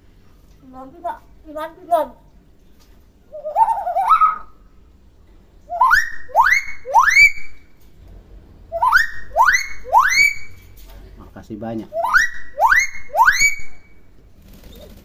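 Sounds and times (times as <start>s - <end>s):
myna whistling: 5.7s - 7.7s, 8.7s - 10.7s, 11.9s - 14.0s.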